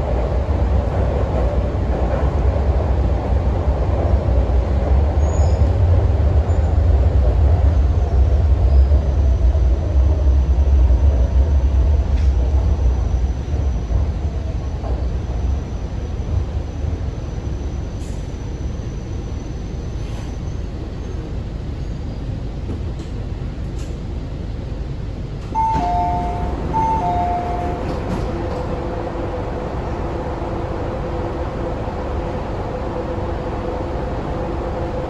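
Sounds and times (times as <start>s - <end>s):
subway train rumble: 0.0s - 35.0s
train doors sliding open: 12.0s - 15.2s, 17.9s - 18.4s, 19.9s - 21.9s, 22.6s - 24.2s, 25.2s - 30.4s
two-tone high-low chime: 25.6s - 27.8s.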